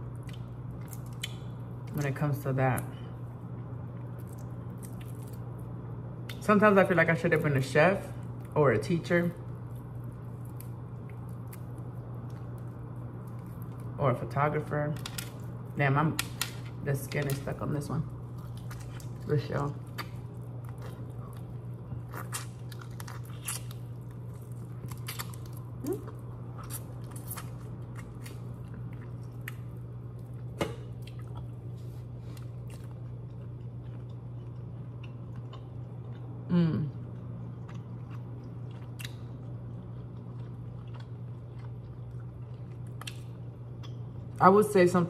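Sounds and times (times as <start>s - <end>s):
chewing and crunching: 0.0s - 2.2s, 2.8s - 6.4s, 9.4s - 14.0s, 15.0s - 44.4s
steady low hum: 0.0s - 45.0s.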